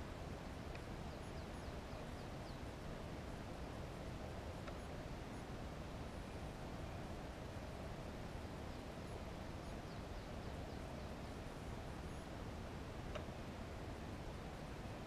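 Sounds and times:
low hiss: 0.0 - 15.0
faint click: 13.1 - 13.3.

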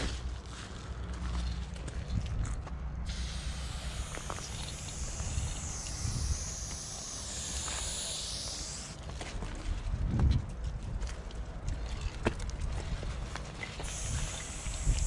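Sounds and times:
spray paint can hissing: 3.1 - 9.1, 13.8 - 15.0.

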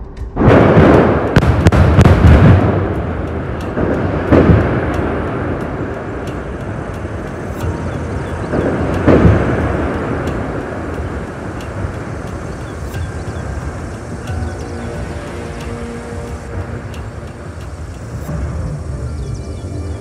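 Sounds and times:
building collapsing rumble: 0.0 - 20.0
explosive charge booms: 0.2 - 10.8.

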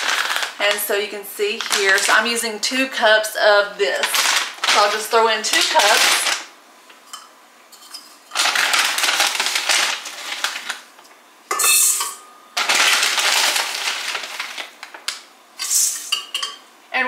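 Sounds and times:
oats pouring into metal bowl: 0.0 - 0.6, 4.0 - 6.4, 8.3 - 10.9, 12.6 - 14.9.

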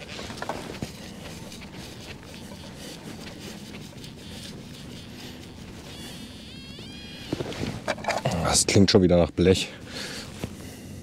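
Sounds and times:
hands sifting through dry soil: 0.0 - 6.4.

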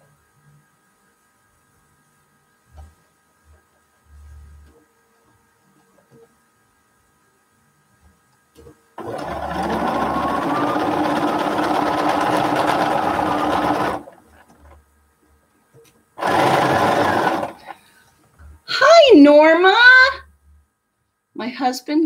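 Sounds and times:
sewing machine stitching: 9.0 - 14.8, 16.2 - 17.8.

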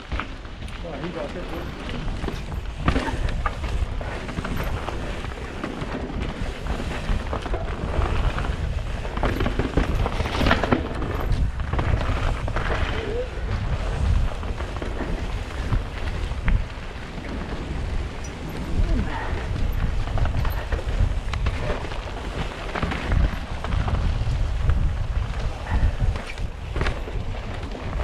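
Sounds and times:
bike knocking and rattling: 0.0 - 28.0
bike tyres rolling over gravel: 0.0 - 28.0
wind buffeting microphone: 0.0 - 28.0.

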